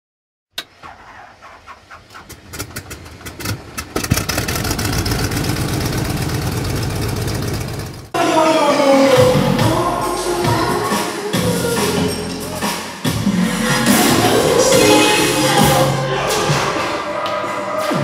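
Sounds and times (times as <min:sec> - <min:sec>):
loud steady rumbling: 0:02.3 - 0:08.2, 0:13.1 - 0:17.1.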